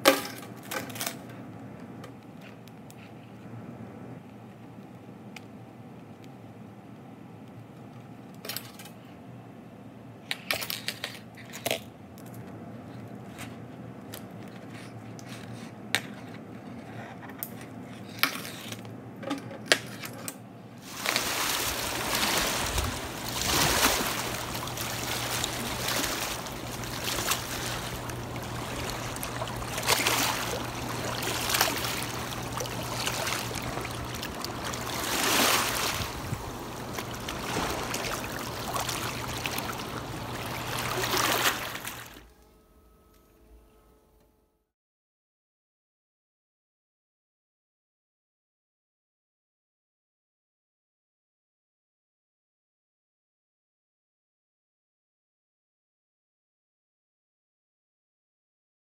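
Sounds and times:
water lapping over rocks: 20.8s - 42.2s.

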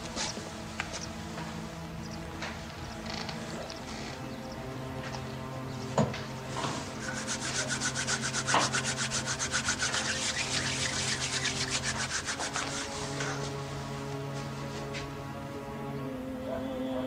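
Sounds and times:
palms rubbing together: 6.2s - 15.1s.

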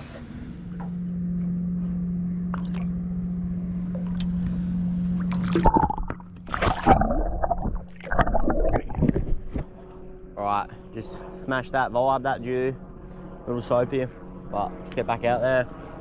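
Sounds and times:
steady low hum: 0.0s - 16.0s
water sloshing and splashing: 5.1s - 9.8s.

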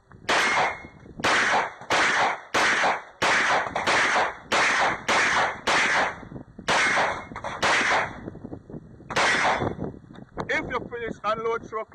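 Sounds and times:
pistol shots: 0.3s - 8.2s, 9.1s - 9.8s.

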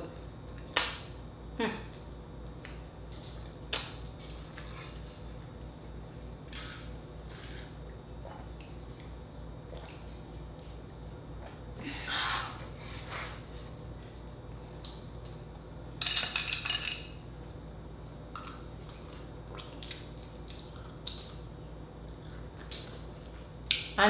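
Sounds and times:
soft mouth eating sounds: 6.5s - 13.5s, 18.4s - 24.0s.

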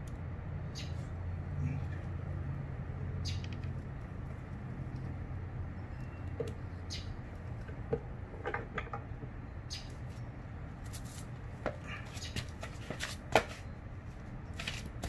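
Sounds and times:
clicks and knocks of metal parts: 7.6s - 9.3s.

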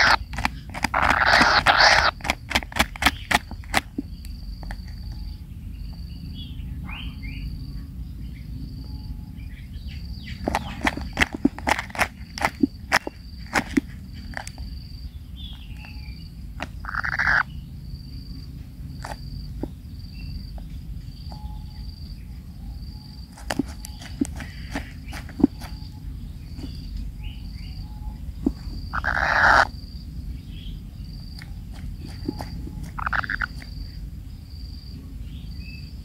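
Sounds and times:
chicks rasping begging calls: 0.0s - 4.2s, 10.0s - 17.7s, 23.3s - 30.0s, 30.7s - 34.4s
sharp clicks: 0.0s - 5.2s, 10.4s - 14.6s, 23.3s - 26.8s, 31.3s - 33.7s
cricket chirping: 0.0s - 36.0s.

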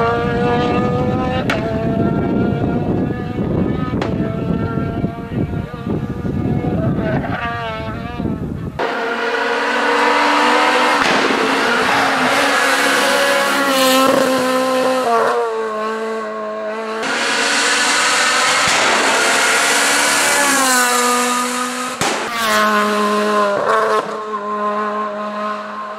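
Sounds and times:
rally car engines revving: 0.0s - 25.9s
sharp bangs: 8.8s - 14.6s, 17.0s - 22.7s.

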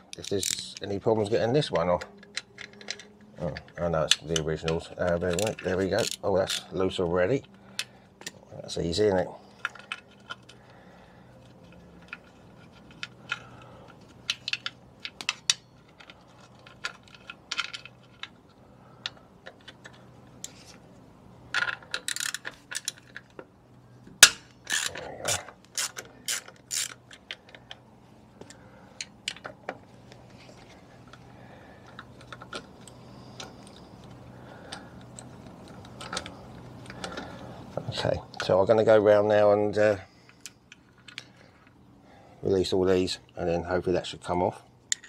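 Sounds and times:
ratchet driver clicking: 24.2s - 27.0s.

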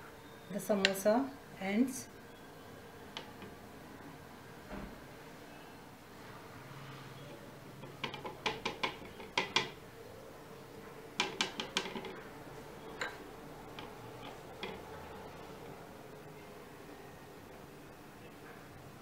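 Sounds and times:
spoon tapping on a plate: 7.8s - 9.8s, 11.2s - 12.2s.

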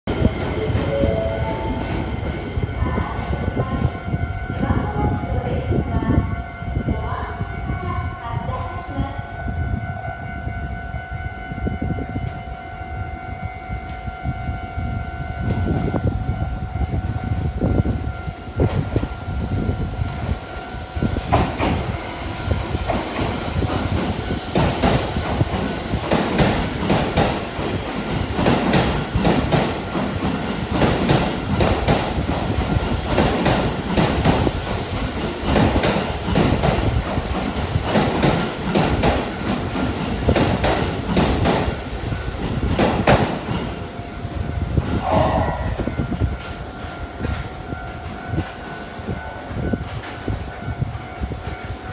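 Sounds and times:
train rumble: 0.0s - 51.9s
steady high tone: 0.1s - 21.1s, 43.8s - 49.8s.

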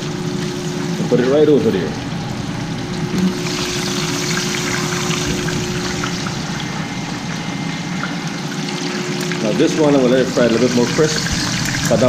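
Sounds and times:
low hum: 0.0s - 9.4s
hot oil sizzling: 0.0s - 12.0s
stew bubbling: 1.7s - 9.4s.

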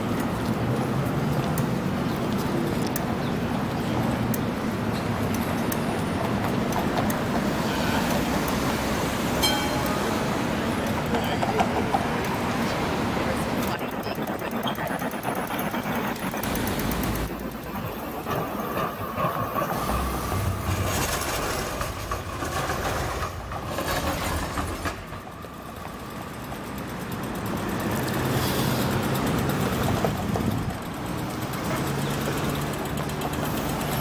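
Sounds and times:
trams and cars going by: 0.0s - 34.0s
idling traffic engine hum: 24.8s - 34.0s.

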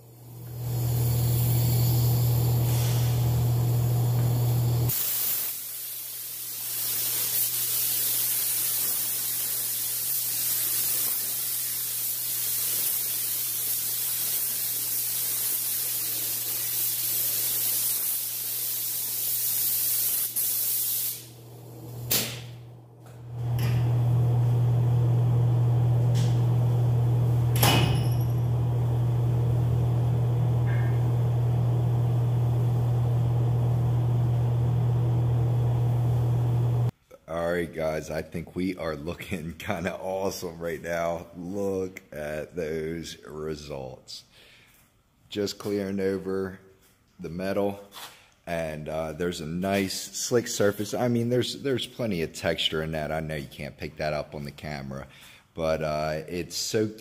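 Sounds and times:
spray gun hissing: 0.2s - 22.4s.

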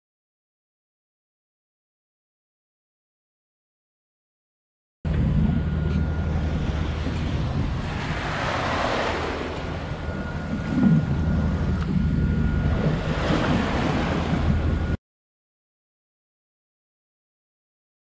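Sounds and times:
low steady rumble: 5.0s - 15.0s
sea waves rushing: 5.1s - 15.0s
wind buffeting microphone: 5.1s - 15.0s.

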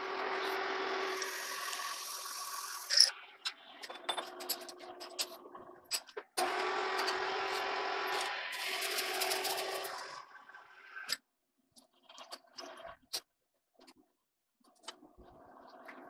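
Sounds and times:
lathe motor hum: 0.0s - 3.0s, 6.4s - 10.6s.

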